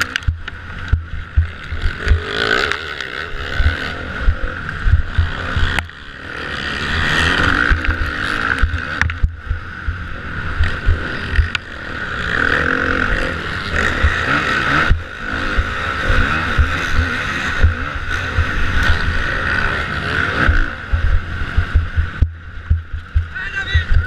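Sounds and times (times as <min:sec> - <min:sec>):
low thumps: 0:00.0 - 0:02.2, 0:03.6 - 0:05.9, 0:07.4 - 0:11.6, 0:14.0 - 0:19.2, 0:20.4 - 0:24.0
motocross bike engine revving: 0:00.0 - 0:24.0.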